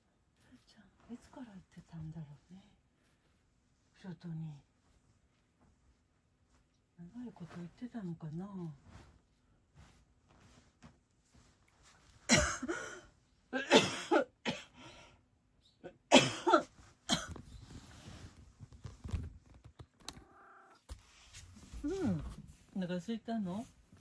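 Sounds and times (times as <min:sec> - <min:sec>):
harsh coughs: 0:12.3 - 0:14.8, 0:15.9 - 0:17.4.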